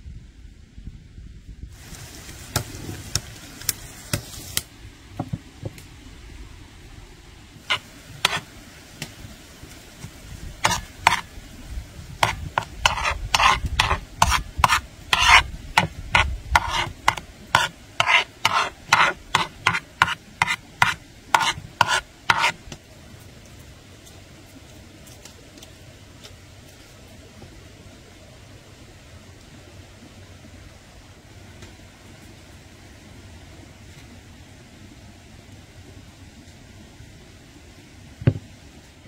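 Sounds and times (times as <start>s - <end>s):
spoon scraping a dish: 7.7s - 8.5s, 10.6s - 11.3s, 12.2s - 22.6s.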